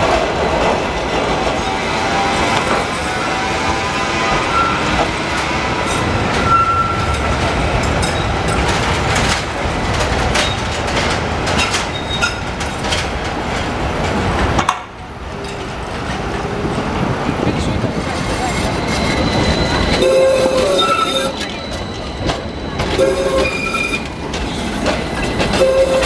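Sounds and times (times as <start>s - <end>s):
tram rumbling past: 0.0s - 26.0s
wheels clicking over rail junction: 4.4s - 16.3s, 17.9s - 26.0s
high wheel squeals: 18.0s - 24.8s.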